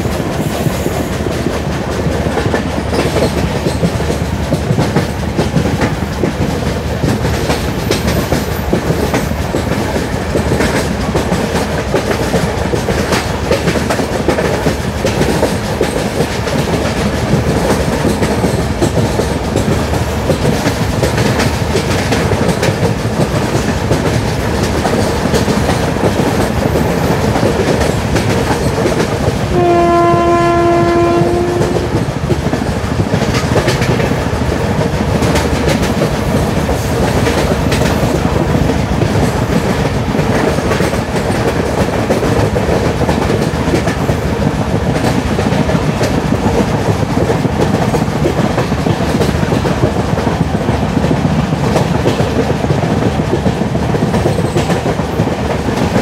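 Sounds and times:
train coach rumbling on rails: 0.0s - 56.0s
locomotive horn: 29.5s - 32.0s.

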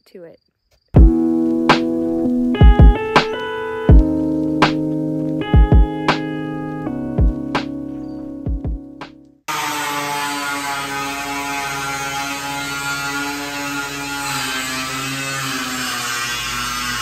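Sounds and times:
angle grinder cutting steel: 9.5s - 17.0s.

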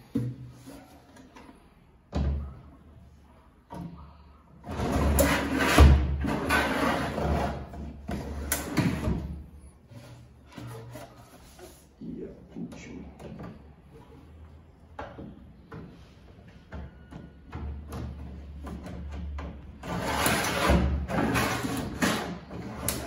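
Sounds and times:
drawers sliding on ball-bearing slides: 4.6s - 12.0s, 19.7s - 23.0s.

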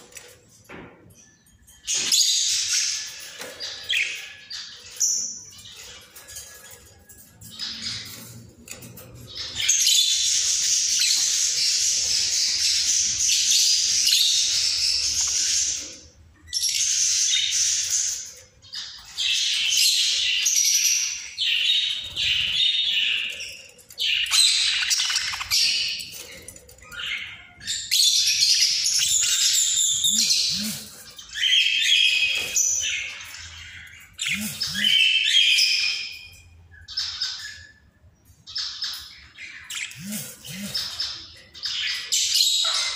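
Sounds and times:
budgerigars warbling and chattering: 7.5s - 36.0s, 38.5s - 42.9s.

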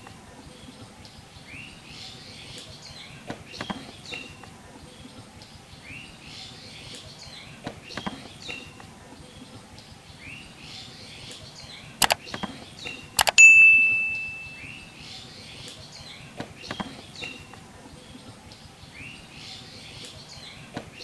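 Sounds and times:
birds chirping: 0.0s - 21.0s
sharp clicks: 12.0s - 12.6s, 13.2s - 13.4s
bright bell ding: 13.3s - 14.9s.

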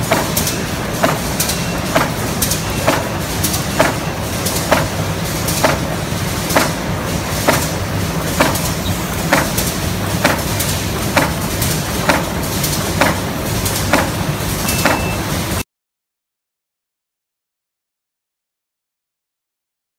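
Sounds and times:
press platen clacking: 0.0s - 5.9s, 6.5s - 15.2s.

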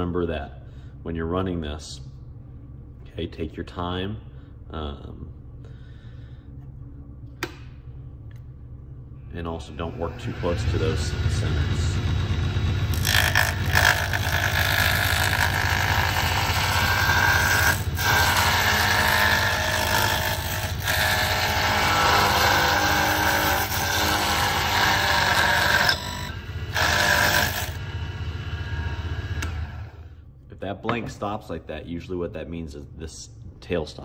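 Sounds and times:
wood lathe motor hum: 9.8s - 30.0s.

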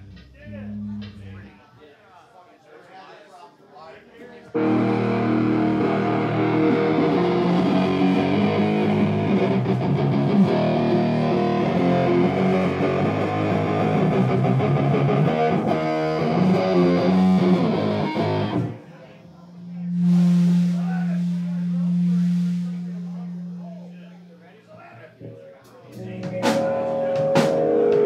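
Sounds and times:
bass guitar: 0.0s - 1.5s, 4.6s - 18.8s, 19.7s - 24.2s, 26.0s - 28.0s
drums: 0.0s - 1.5s, 4.6s - 18.7s, 19.9s - 23.6s, 25.1s - 28.0s
distorted electric guitar: 4.5s - 28.0s.

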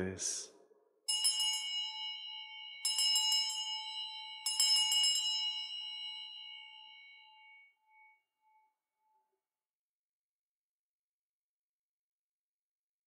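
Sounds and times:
altar bells ringing: 1.1s - 8.7s.

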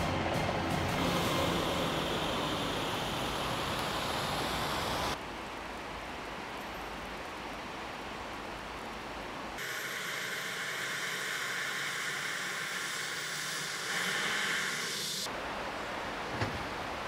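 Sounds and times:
helicopter turbine whine: 0.0s - 5.2s, 9.6s - 15.3s
soft outdoor noise: 0.0s - 17.0s.

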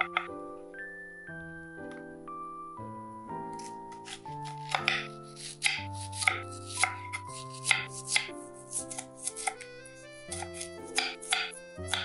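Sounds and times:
background music: 0.0s - 12.0s
knife slicing onion on wooden board: 3.6s - 12.0s.

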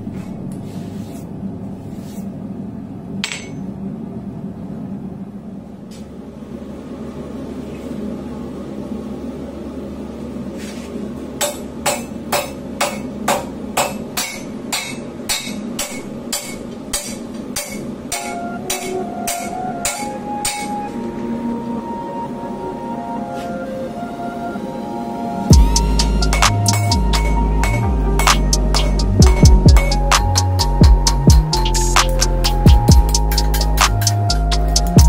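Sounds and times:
hammer ringing on anvil: 3.2s - 3.7s, 11.4s - 20.8s.

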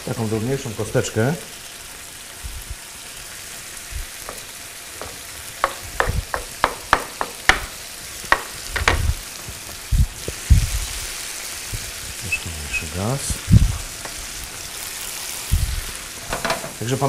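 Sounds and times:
food sizzling in pans: 0.0s - 17.0s
knife chopping on wooden board: 5.0s - 9.1s.

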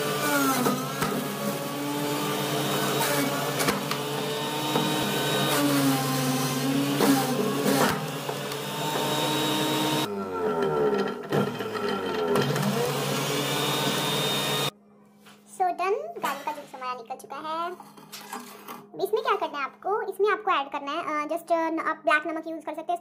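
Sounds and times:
electric juicer motor running: 0.0s - 14.7s.

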